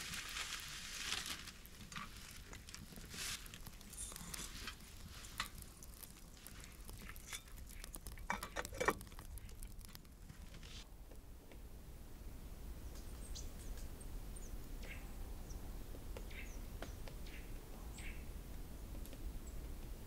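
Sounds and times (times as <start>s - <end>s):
plastic bag rustling: 0.0s - 10.8s
small clicks and knocks: 1.8s - 11.6s.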